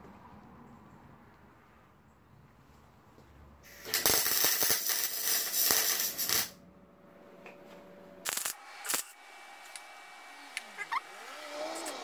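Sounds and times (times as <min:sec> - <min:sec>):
welder crackling: 0:03.6 - 0:06.6, 0:08.2 - 0:12.0.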